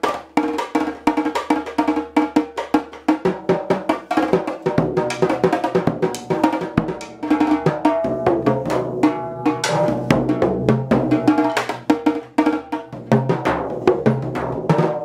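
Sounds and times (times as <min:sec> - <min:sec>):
drum kit tom strikes: 0:04.8 - 0:15.0.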